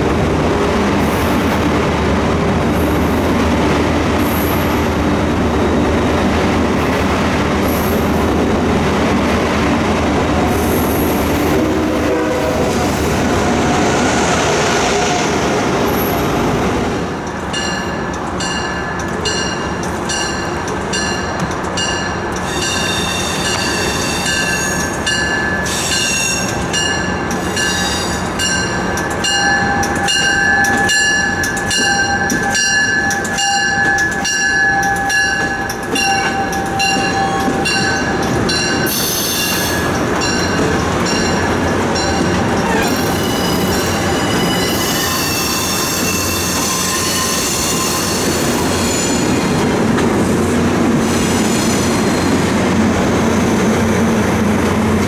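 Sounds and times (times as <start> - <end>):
passenger trains rolling: 0.0 - 55.0
bell ringing steadily: 17.5 - 22.9, 26.7 - 39.0, 39.9 - 45.2.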